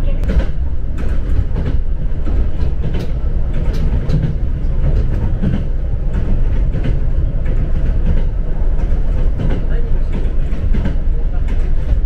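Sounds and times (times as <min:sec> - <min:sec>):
train wheels rumbling on rails: 0:00.0 - 0:12.0.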